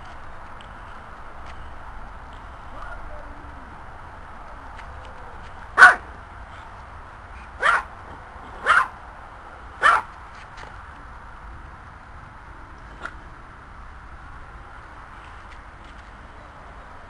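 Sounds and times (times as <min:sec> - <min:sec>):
dog barking sharply: 0:05.8 - 0:06.0, 0:07.6 - 0:07.9, 0:08.6 - 0:08.9, 0:09.8 - 0:10.1.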